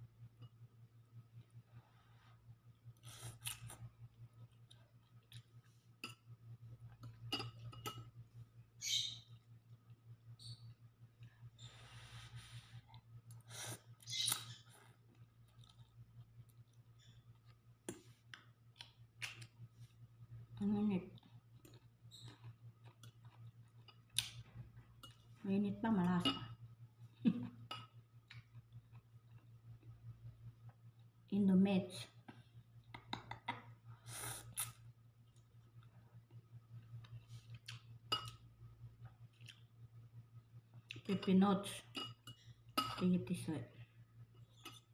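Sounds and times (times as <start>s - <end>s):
person chewing: 21.4s - 24.4s, 39.2s - 39.7s.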